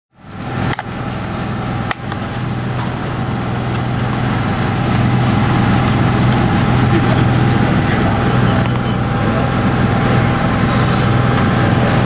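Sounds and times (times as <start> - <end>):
small two-stroke engine idling: 0.2 - 12.0.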